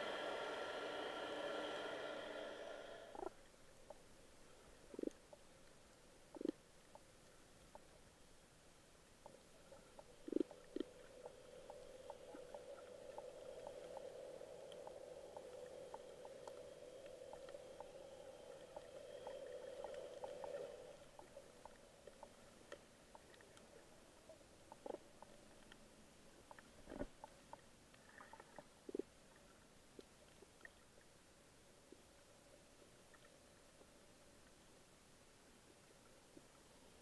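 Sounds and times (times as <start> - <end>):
steady low hum: 0.0 - 26.9
small underwater clicks and crackles: 3.1 - 37.0.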